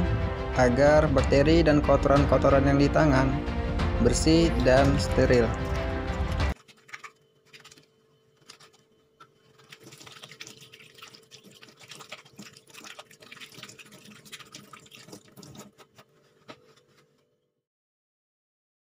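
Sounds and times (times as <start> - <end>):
tap water splashing into sink: 9.6 - 15.8.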